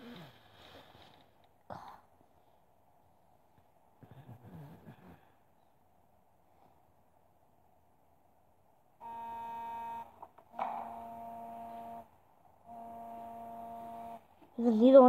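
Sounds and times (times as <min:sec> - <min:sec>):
buzzing hum: 0:09.0 - 0:14.4.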